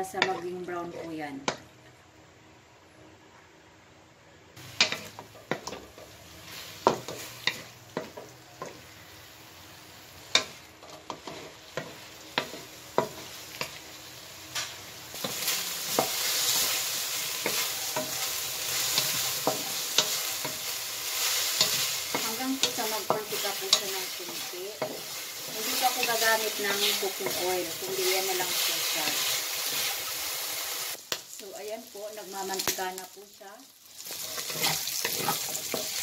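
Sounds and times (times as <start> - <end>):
wooden spatula scraping a wok: 4.6 - 9.2, 10.2 - 13.8, 14.5 - 30.9, 34.0 - 36.0
meat frying sizzle: 4.6 - 36.0.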